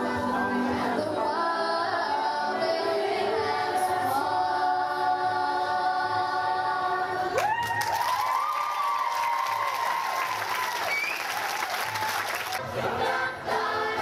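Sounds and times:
choir singing in harmony: 0:00.0 - 0:07.4, 0:12.6 - 0:14.0.

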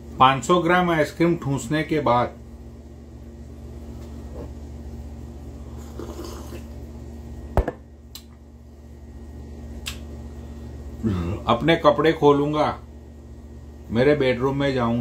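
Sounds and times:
steady low hum: 0:00.0 - 0:15.0
sharp click: 0:09.8 - 0:10.1.

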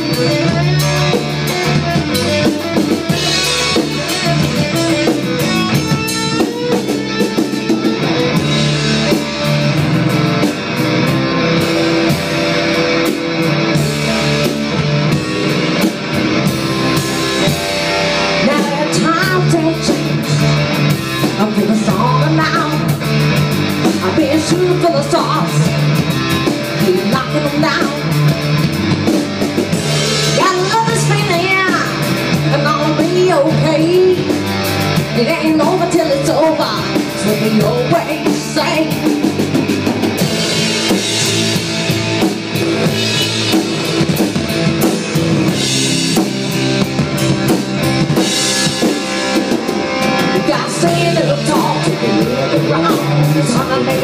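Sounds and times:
rock band playing live: 0:00.0 - 0:54.0
pitch-bending melody line: 0:35.4 - 0:54.0.

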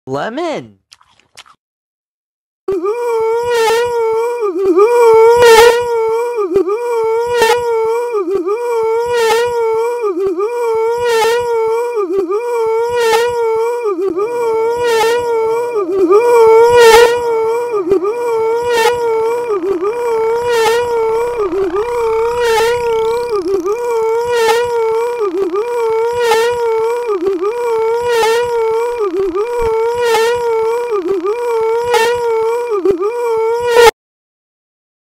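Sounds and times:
distorted high-pitched wail: 0:16.2 - 0:25.8
tone sliding upward in pitch: 0:16.5 - 0:25.1.

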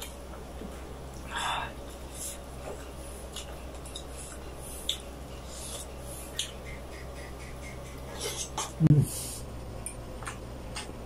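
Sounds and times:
wet eating and smacking: 0:02.6 - 0:08.8.

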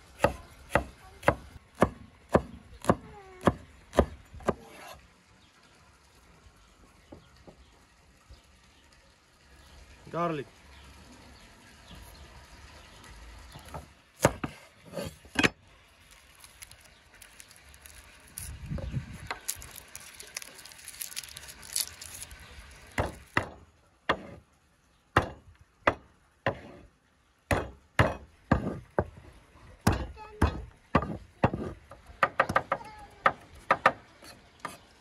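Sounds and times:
cleaver smashing garlic: 0:15.3 - 0:23.5
garlic bulb crackling: 0:15.9 - 0:23.4.

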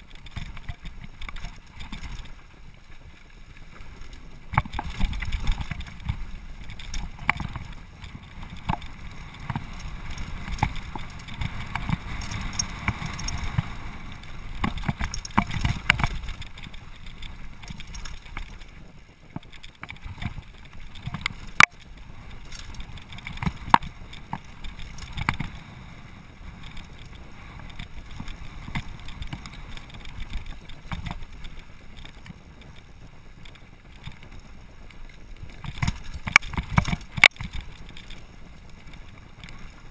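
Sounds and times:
wind and tyres rumbling: 0:00.0 - 0:39.9
bike knocks and rattles: 0:04.4 - 0:18.7, 0:19.3 - 0:25.6, 0:26.6 - 0:34.4, 0:35.5 - 0:39.9.

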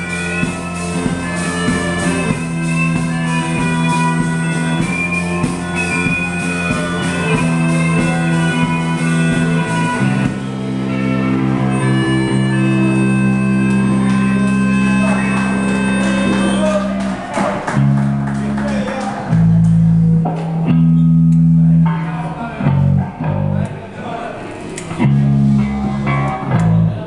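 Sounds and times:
live rock band playing: 0:00.0 - 0:23.6, 0:24.8 - 0:27.0.

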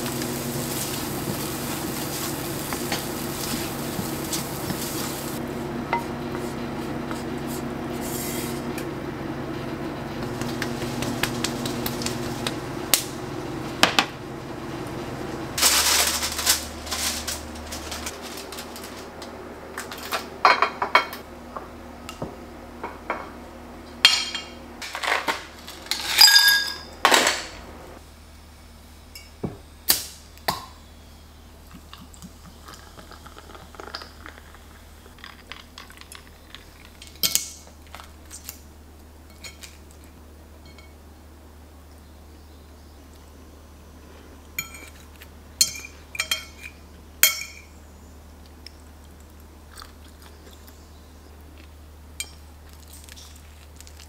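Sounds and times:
steady hum: 0:00.0 - 0:54.0
wooden spatula scraping a pan: 0:06.3 - 0:08.6
plates and cutlery clinking: 0:44.6 - 0:47.7.

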